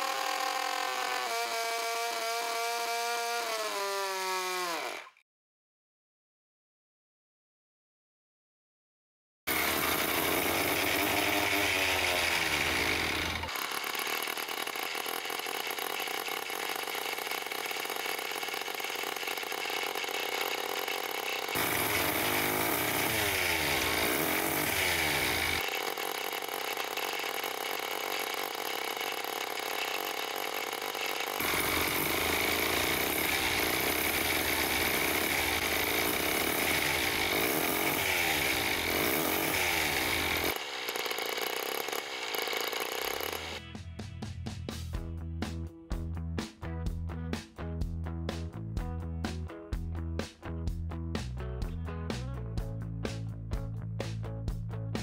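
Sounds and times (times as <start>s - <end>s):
rotary engine whine at high revs: 16.8s - 25.8s.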